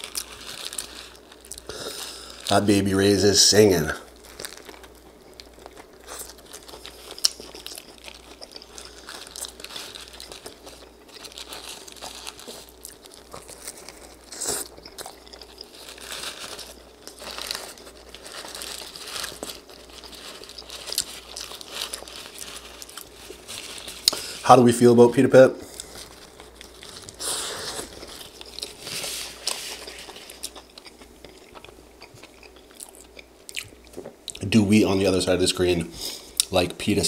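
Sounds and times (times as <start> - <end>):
paper and foil wrapper crinkling: 0.0 - 31.7
crunch of bites: 4.1 - 24.4, 25.8 - 34.1
wet chewing: 4.1 - 24.4, 25.7 - 34.4.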